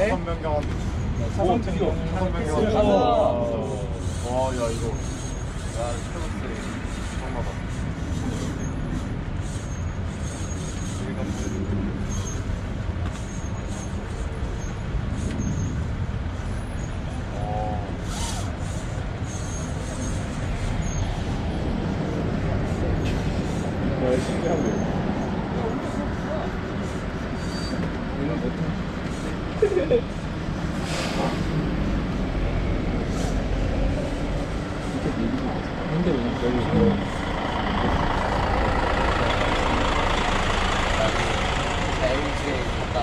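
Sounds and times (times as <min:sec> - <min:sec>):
bus engine rumble: 0:00.0 - 0:43.0
road and wind noise: 0:00.0 - 0:43.0
brief hiss: 0:30.8 - 0:31.6.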